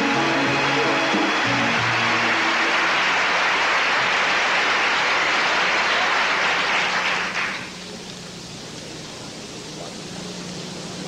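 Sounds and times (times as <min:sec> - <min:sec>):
audience applauding: 0:00.0 - 0:07.8.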